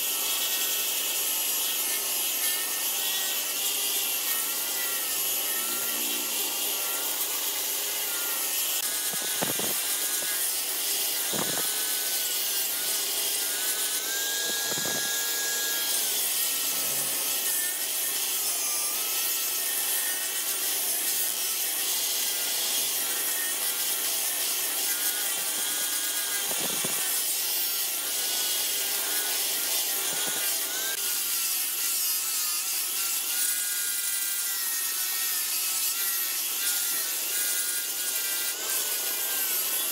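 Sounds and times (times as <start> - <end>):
grinder motor whine: 0.0 - 31.1
angle grinder grinding wood: 0.0 - 39.9.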